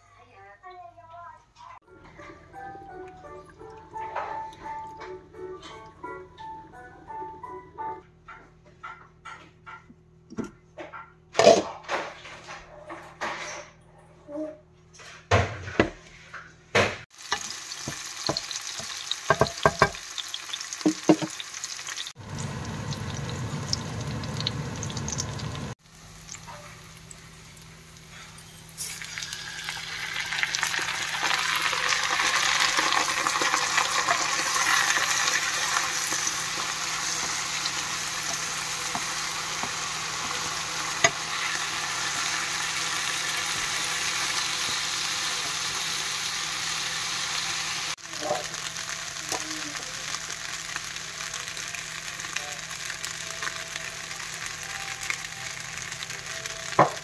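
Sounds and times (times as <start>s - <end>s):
frying sizzle in a pan: 2.2s - 5.8s, 16.7s - 57.0s.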